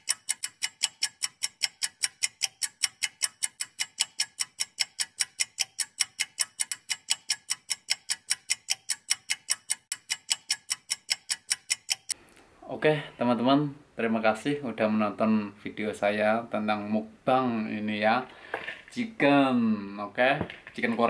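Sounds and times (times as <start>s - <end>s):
fast even ticking: 0.0s - 12.2s.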